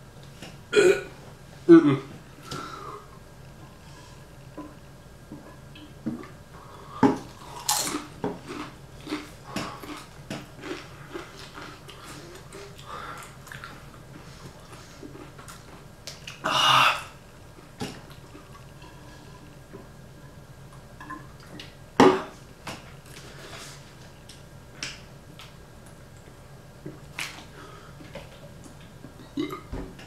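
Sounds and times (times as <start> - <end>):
chewing crunchy chip: 7.3 - 16.4.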